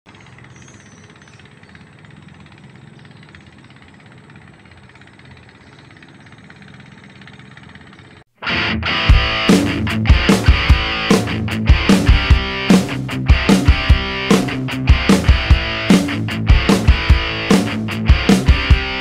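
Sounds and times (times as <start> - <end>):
low engine hum: 0.1 - 8.3.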